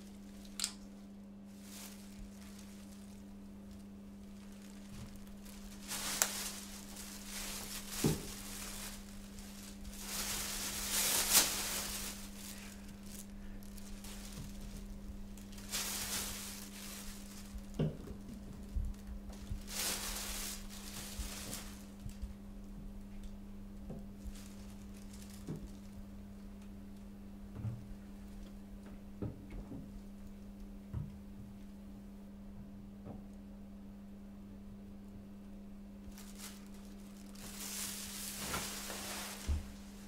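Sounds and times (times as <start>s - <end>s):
rustling of handling: 0.0s - 22.4s, 23.9s - 26.7s, 36.0s - 40.0s
steady low hum: 0.0s - 40.0s.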